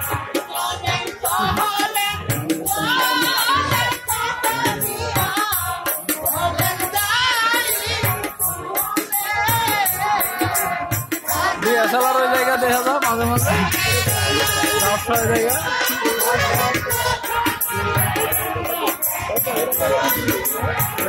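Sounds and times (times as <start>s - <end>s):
person singing folk melody: 0.0s - 7.2s
barrel drum beat: 0.0s - 21.0s
jingling hand percussion: 0.0s - 21.0s.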